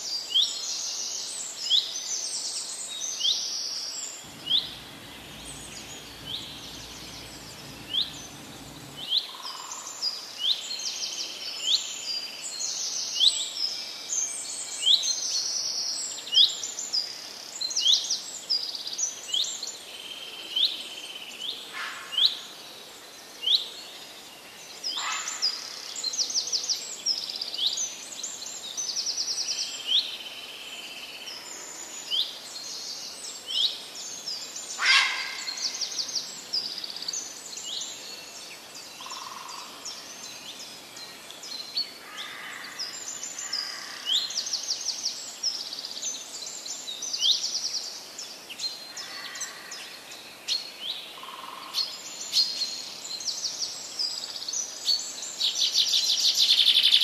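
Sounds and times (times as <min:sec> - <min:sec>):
small birds chirping: 0:04.2 - 0:09.2.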